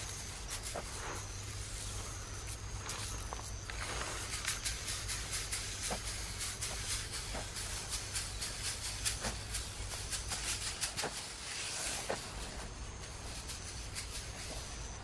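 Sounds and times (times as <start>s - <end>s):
small ticks and crackles: 0.0s - 15.0s
steady hiss: 0.0s - 15.0s.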